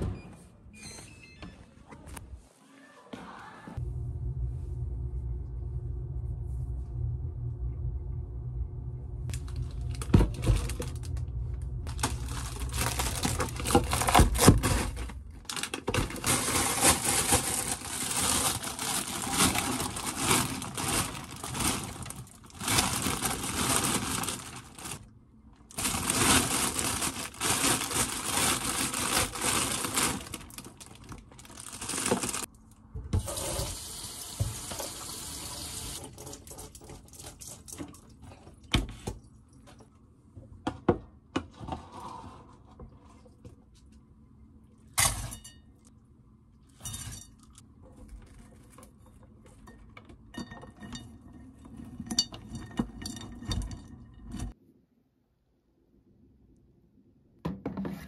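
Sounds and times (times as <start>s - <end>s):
tap water running into colander: 33.2s - 37.0s.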